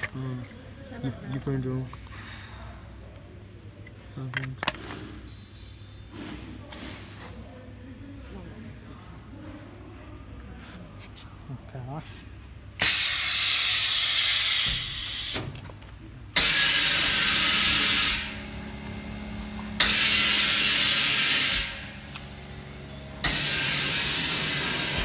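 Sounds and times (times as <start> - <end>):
air hissing in bursts: 12.8 - 15.5, 16.4 - 18.5, 19.7 - 25.0
steady low hum: 15.5 - 25.0.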